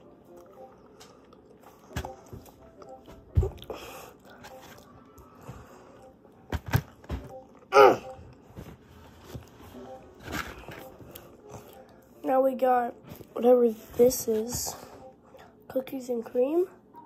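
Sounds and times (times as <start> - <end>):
person chewing a cookie: 0.0 - 8.5, 10.6 - 12.2.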